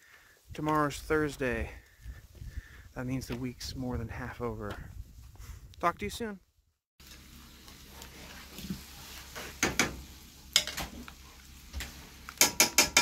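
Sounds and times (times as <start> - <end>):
faint sizzle: 7.0 - 12.4
spatula stirring meat in skillet: 7.0 - 13.0.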